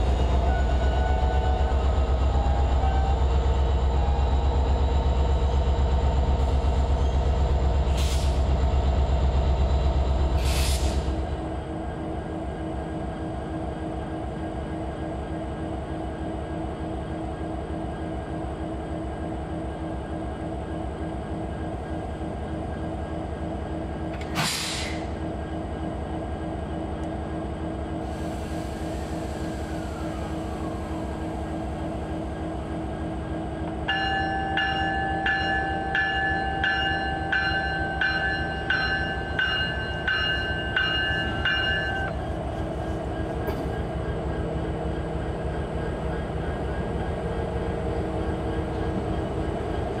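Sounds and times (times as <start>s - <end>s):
diesel locomotive idling: 0.0s - 50.0s
locomotive bell ringing: 33.8s - 42.2s.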